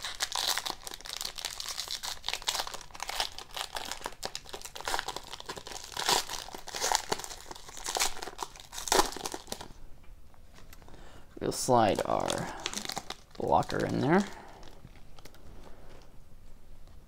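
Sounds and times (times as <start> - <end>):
foil wrapper crinkling and tearing: 0.0 - 9.8, 11.6 - 15.4.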